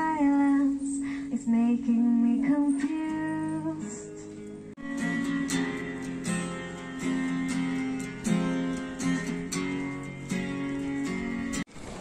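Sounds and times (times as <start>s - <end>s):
acoustic guitar strumming: 2.4s - 11.7s.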